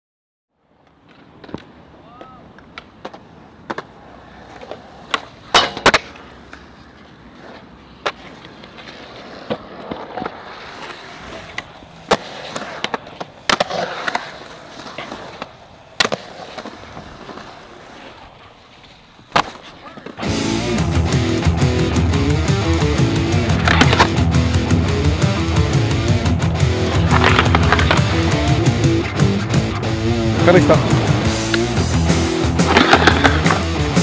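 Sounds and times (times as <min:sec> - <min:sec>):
skateboard wheels rolling on concrete: 0:00.6 - 0:34.0
skateboard clacking on concrete: 0:00.8 - 0:20.2, 0:23.3 - 0:24.4, 0:25.6 - 0:28.9, 0:32.5 - 0:33.7
rock music: 0:20.2 - 0:34.0.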